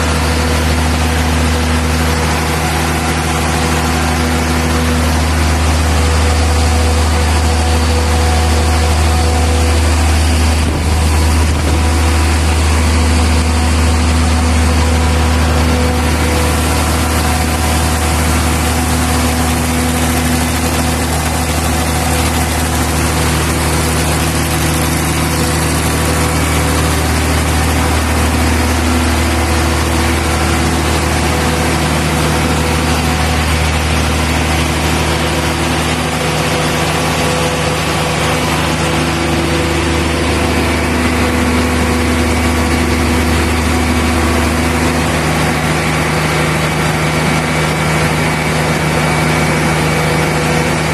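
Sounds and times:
diesel generator humming: 0:00.0 - 0:50.9.

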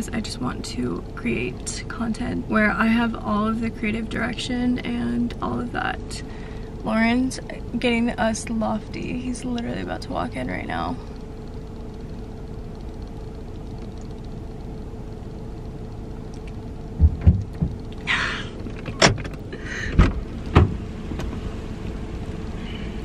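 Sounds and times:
low hum in car cabin: 0:00.0 - 0:23.0
low knocks on car door: 0:17.0 - 0:17.8.

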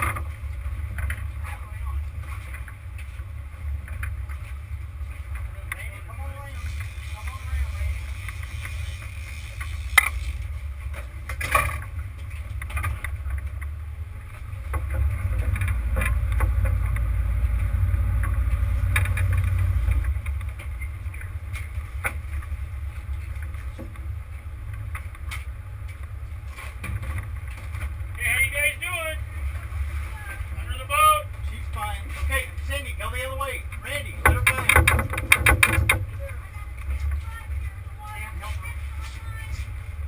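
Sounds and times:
boat engine rumble: 0:00.0 - 0:40.0
wind and water noise: 0:00.0 - 0:40.0
knocks and clatters on board: 0:10.9 - 0:13.7, 0:34.1 - 0:36.2.

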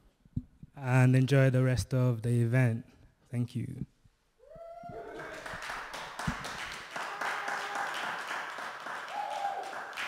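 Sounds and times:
group hand clapping: 0:05.1 - 0:10.0.

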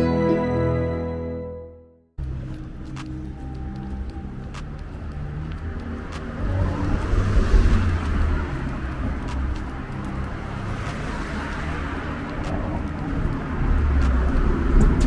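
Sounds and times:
road traffic rumble: 0:02.2 - 0:15.0
vehicle passing: 0:02.2 - 0:15.0.

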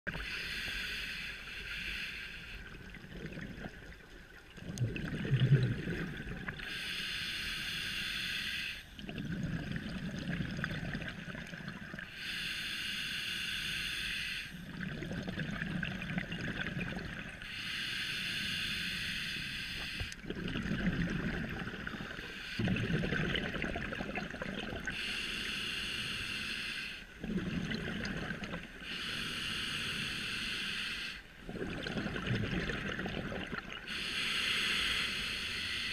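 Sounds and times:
hissing regulator inhale: 0:00.2 - 0:02.7, 0:06.6 - 0:09.0, 0:12.1 - 0:14.6, 0:17.4 - 0:20.2, 0:21.8 - 0:22.7, 0:24.9 - 0:27.2, 0:28.8 - 0:31.3, 0:33.9 - 0:35.9
bubbling exhale: 0:04.6 - 0:07.0, 0:14.7 - 0:35.9.

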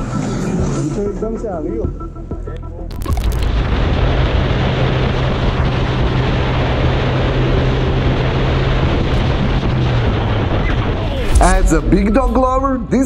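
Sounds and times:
motorcycle engine drone: 0:03.4 - 0:13.0
wind rush on microphone: 0:03.4 - 0:13.0.

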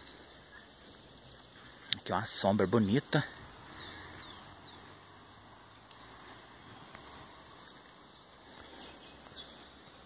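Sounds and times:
faint bird chirps: 0:00.0 - 0:10.0
low steady hiss: 0:00.0 - 0:10.0.

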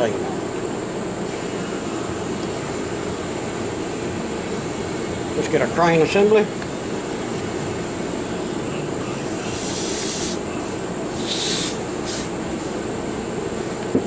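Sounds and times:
steady background hum: 0:00.0 - 0:14.0
aerosol can spraying: 0:09.5 - 0:10.4, 0:11.2 - 0:12.3.

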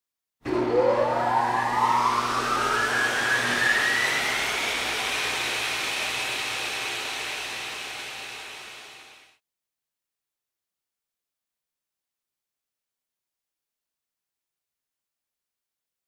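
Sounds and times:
rising whoosh: 0:00.5 - 0:05.2.

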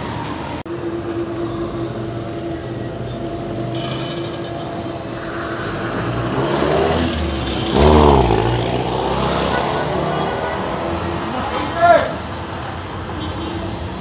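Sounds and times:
tram hum: 0:00.0 - 0:11.5
car engine revving: 0:00.8 - 0:11.4
hiss: 0:05.2 - 0:07.0.

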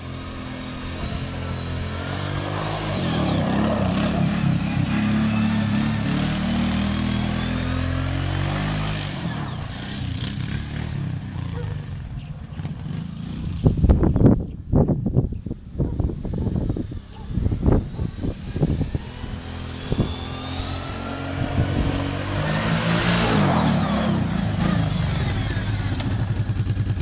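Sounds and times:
quad bike engine passing: 0:00.0 - 0:27.0.

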